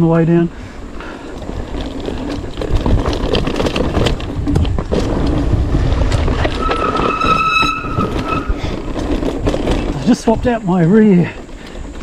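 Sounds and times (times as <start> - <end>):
bike tyres on dirt trail: 0.0 - 12.0
wind buffeting microphone: 0.0 - 12.0
knocks and rattles: 1.2 - 10.4
high brake squeal: 6.5 - 8.9.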